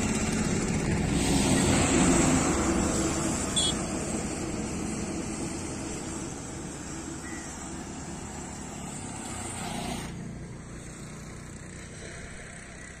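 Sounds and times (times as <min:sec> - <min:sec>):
low road rumble: 0:00.0 - 0:13.0
hiss: 0:01.0 - 0:11.0.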